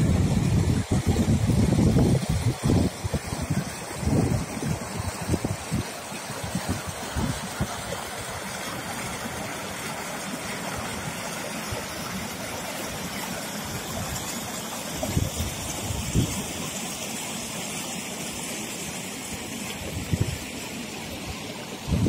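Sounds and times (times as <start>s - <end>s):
wind buffeting microphone: 0.0s - 8.3s, 15.0s - 16.5s, 19.8s - 20.4s
stream running over rocks: 0.0s - 22.0s.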